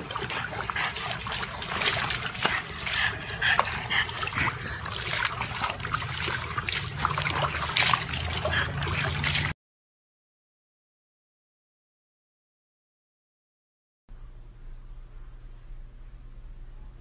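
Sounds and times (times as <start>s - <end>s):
water splashing in plastic tub: 0.0s - 9.6s.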